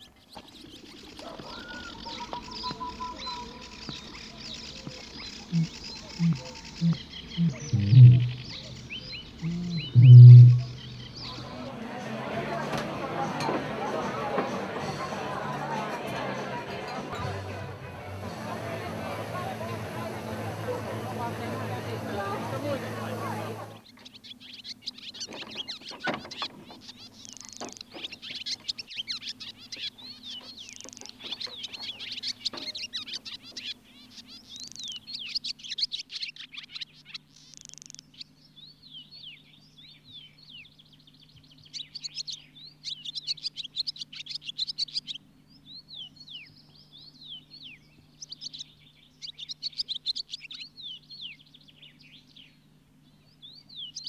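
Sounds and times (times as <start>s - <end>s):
small birds chirping: 0.0s - 11.9s, 21.0s - 54.0s
faint low hum: 0.6s - 12.0s.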